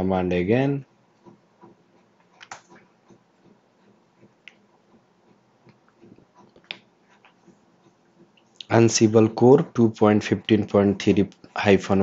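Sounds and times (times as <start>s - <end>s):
mouse and keyboard clicks: 2.3s - 3.2s.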